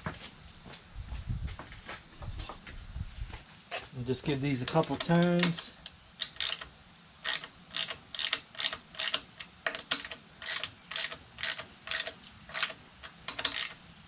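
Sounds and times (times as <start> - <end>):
ratchet wrench clicking: 4.6 - 13.8.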